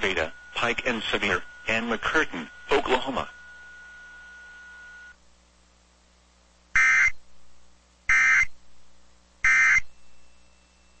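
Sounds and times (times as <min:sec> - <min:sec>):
buzzy digital data tones: 0:00.0 - 0:05.2, 0:06.8 - 0:07.2, 0:08.1 - 0:08.6, 0:09.4 - 0:11.0.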